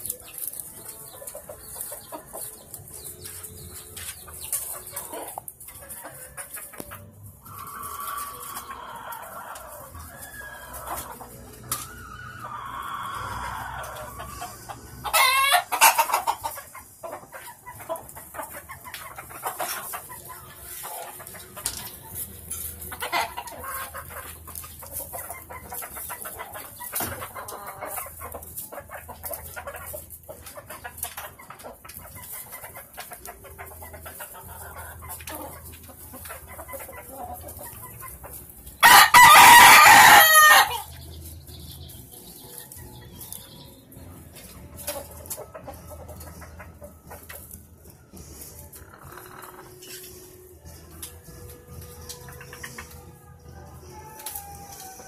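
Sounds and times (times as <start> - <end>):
roosters clucking: 0.0 - 55.0
roosters crowing: 7.3 - 16.6, 38.8 - 41.0, 53.4 - 55.0.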